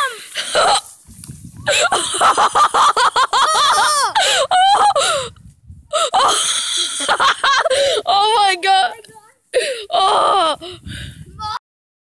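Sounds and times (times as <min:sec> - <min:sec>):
sled scuffing on snow: 0:00.0 - 0:02.2
people yelling and shrieking: 0:03.4 - 0:05.0.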